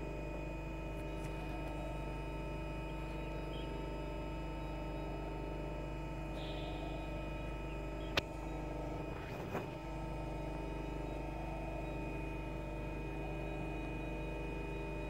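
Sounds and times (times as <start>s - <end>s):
machine hum with steady tones: 0.0s - 15.0s.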